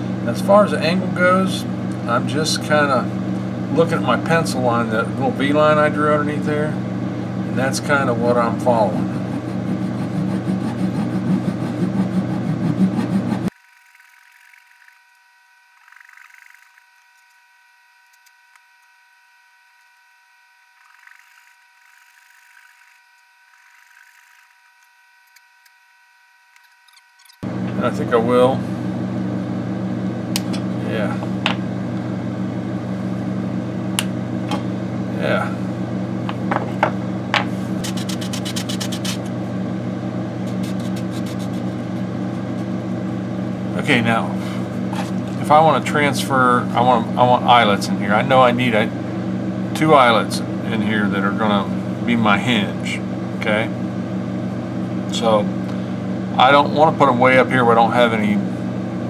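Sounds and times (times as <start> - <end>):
steady machine hum: 0.0 - 59.0
sandpaper rubbing: 8.9 - 14.2, 37.5 - 39.3, 40.4 - 41.9
light knocks on workbench: 36.3 - 37.5.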